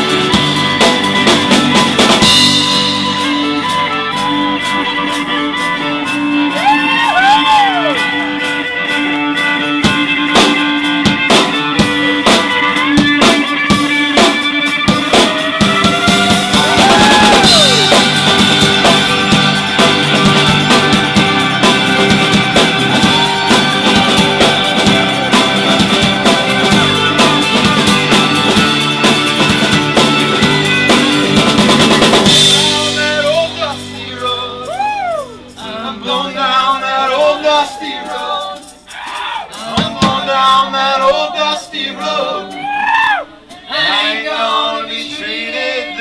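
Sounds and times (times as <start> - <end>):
live band with drum kit: 0.0 - 46.0
man singing into microphone: 32.5 - 38.4, 39.5 - 42.6.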